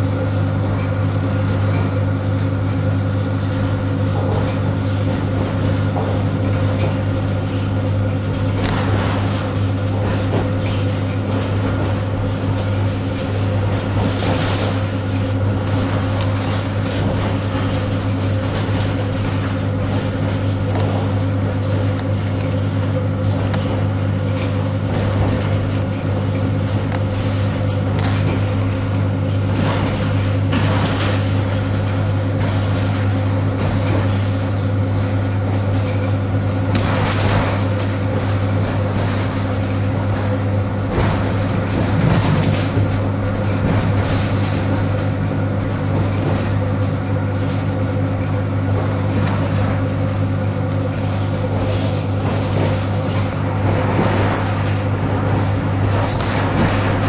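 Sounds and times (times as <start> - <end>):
train low hum: 0.0 - 57.0
wheels running on rails: 0.0 - 57.0
train clattering: 51.0 - 57.0.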